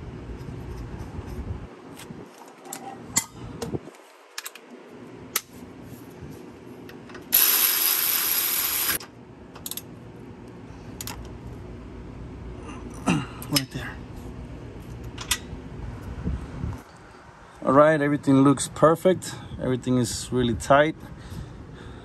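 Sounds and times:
ratchet wrench ratcheting: 7.3s - 9.0s.

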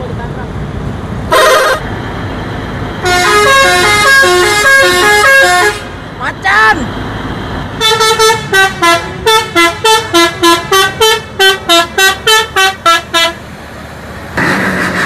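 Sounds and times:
bus musical horn tune: 1.3s - 1.8s, 3.0s - 6.0s, 7.8s - 13.4s
loud rushing noise: 13.4s - 15.0s.

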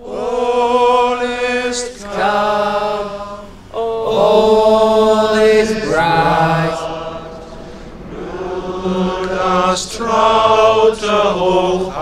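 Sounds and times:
person singing long held notes: 0.0s - 12.0s.

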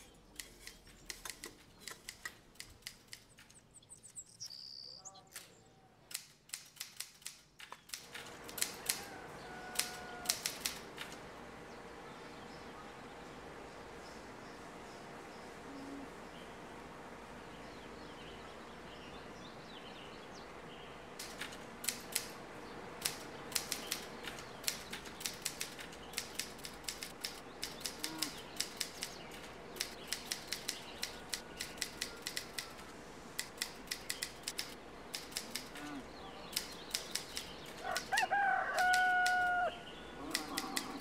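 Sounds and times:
rooster crowing: 8.8s - 10.6s, 37.8s - 41.0s.

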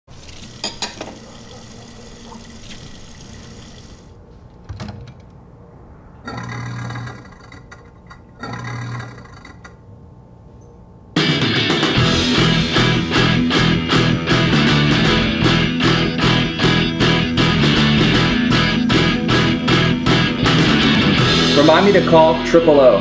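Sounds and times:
faucet running: 0.1s - 4.1s
low hum with hiss: 0.1s - 11.2s
ceramic dishes clinking: 0.6s - 1.2s.

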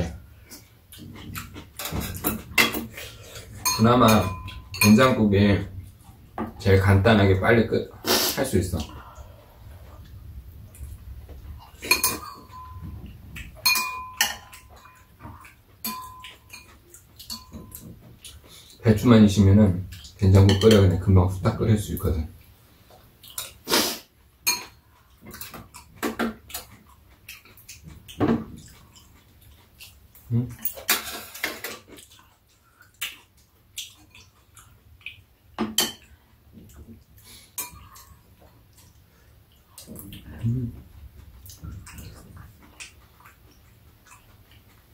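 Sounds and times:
metal spoons clinking dishes: 1.8s - 3.0s, 3.6s - 5.2s, 11.7s - 12.9s, 13.6s - 15.1s, 15.8s - 17.9s, 20.4s - 20.9s, 24.5s - 24.8s.

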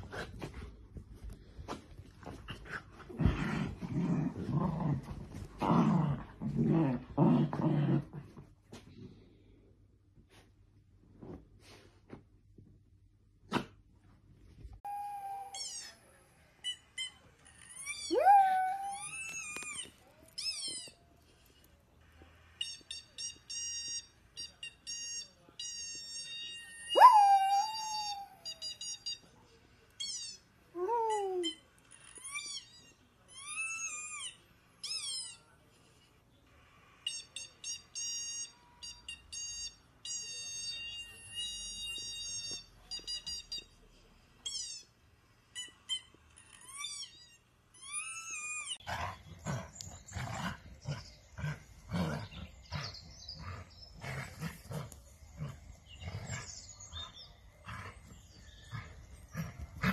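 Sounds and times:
dogs playing and growling: 0.0s - 8.7s, 48.7s - 59.9s
dog howling: 27.0s - 28.3s.

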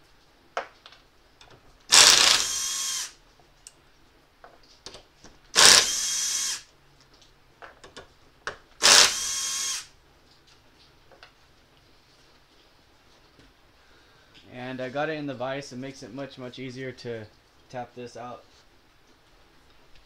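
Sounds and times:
cordless drill running: 1.9s - 3.2s, 5.6s - 6.7s, 8.8s - 9.9s.

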